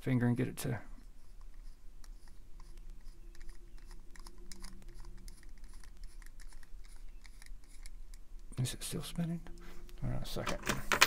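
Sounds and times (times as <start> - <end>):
screwdriver clicking and scratching: 1.0 - 8.5.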